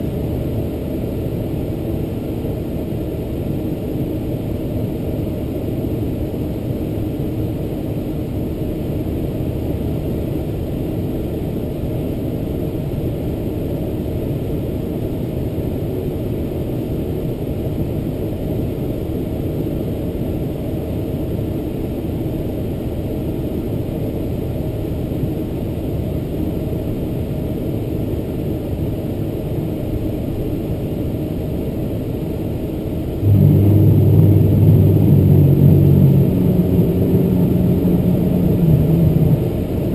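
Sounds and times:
jet engine rumble: 0.0s - 39.9s
steady low hum: 0.0s - 39.9s.

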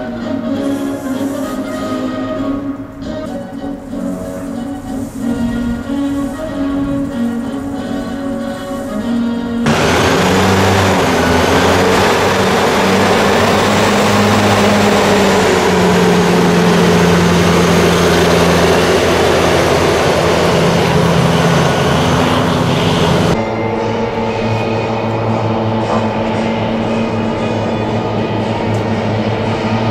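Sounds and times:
hovercraft propeller roaring: 3.8s - 29.9s
low hum: 9.7s - 29.9s.

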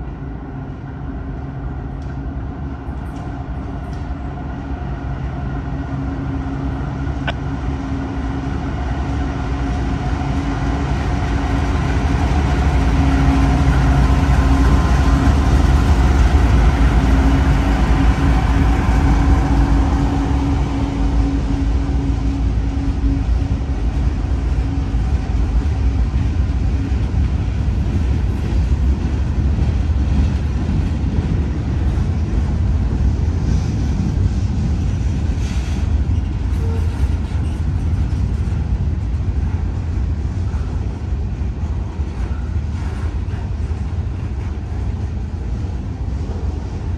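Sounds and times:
locomotive engine drone: 0.0s - 46.9s
train rolling rumble: 0.0s - 46.9s.

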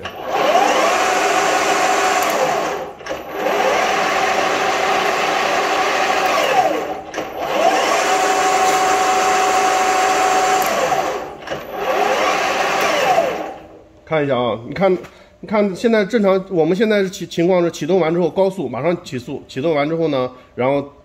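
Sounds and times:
lathe motor whine: 0.0s - 13.8s.

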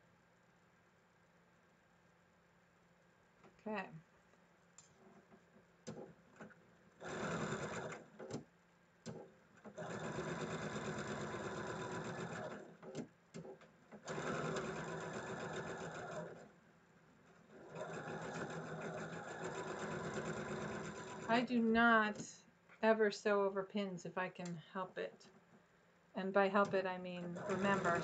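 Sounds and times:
sewing machine stitching: 5.9s - 8.4s, 9.1s - 16.5s, 17.2s - 22.2s, 26.6s - 28.0s.

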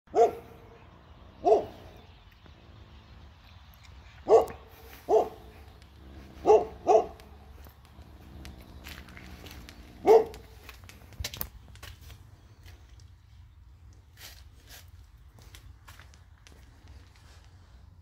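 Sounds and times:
dog barking: 0.1s - 0.8s, 1.4s - 1.9s, 4.2s - 5.6s, 6.2s - 7.4s, 10.0s - 10.6s.

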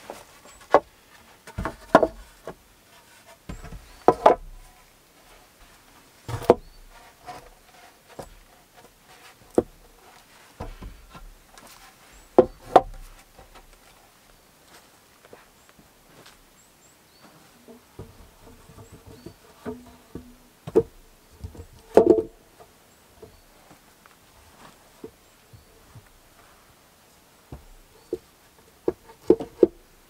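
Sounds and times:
wooden poles knocking: 0.1s - 2.6s, 3.4s - 4.8s, 6.3s - 10.0s, 10.6s - 13.7s, 17.6s - 22.6s, 27.5s - 29.9s.

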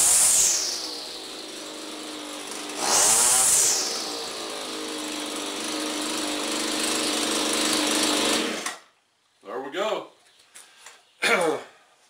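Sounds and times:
string trimmer engine revving: 0.0s - 8.8s.

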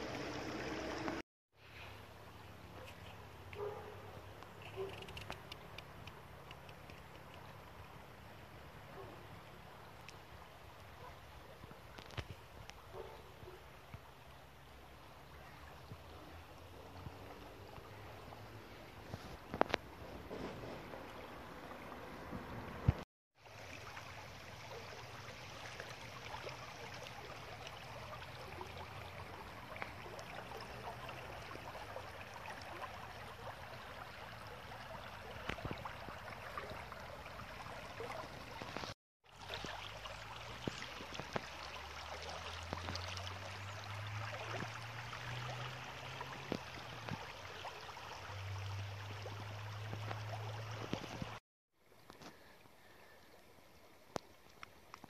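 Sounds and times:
river water flowing over stones: 0.0s - 1.2s, 13.8s - 55.0s.

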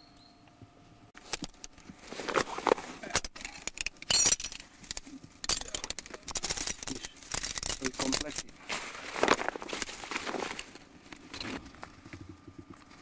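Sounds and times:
rustling: 1.2s - 3.2s, 6.0s - 13.0s
metal carabiners clinking: 3.1s - 8.6s.

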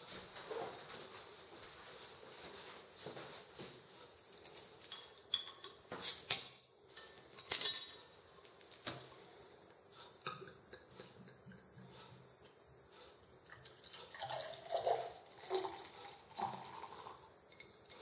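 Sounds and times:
glass clinks: 4.4s - 5.8s
bottle cap hissing: 5.4s - 6.4s.

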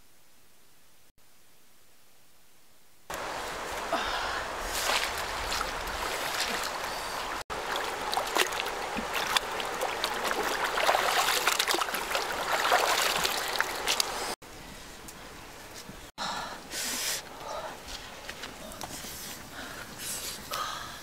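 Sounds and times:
water splashing and trickling: 3.1s - 14.4s.

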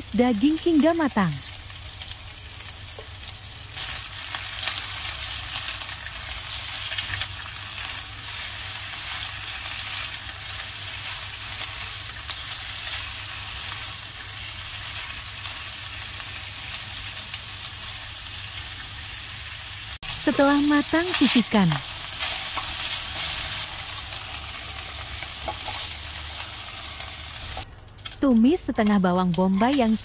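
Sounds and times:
meatballs sizzling in a wok: 0.4s - 27.6s
spatula stirring in a pan: 25.2s - 26.4s.

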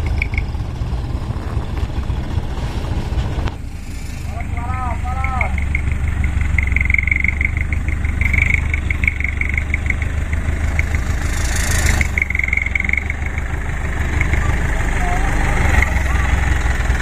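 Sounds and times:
diesel truck engine idling: 0.0s - 17.0s
short high-pitched beeps: 5.2s - 11.0s, 12.0s - 13.4s.

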